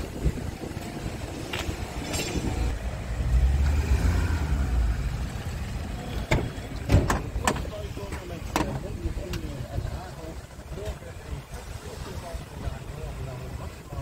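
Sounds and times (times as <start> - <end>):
wind buffeting microphone: 0.0 - 2.8.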